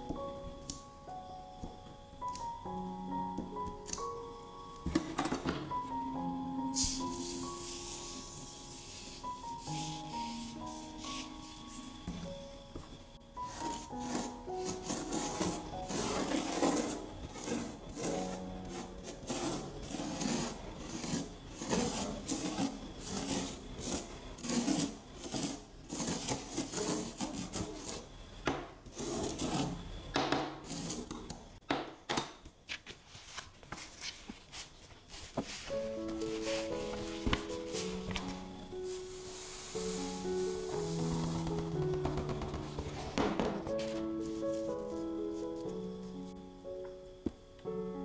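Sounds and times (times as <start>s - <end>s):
plastic spoon scraping sand: 13.5s - 28.0s.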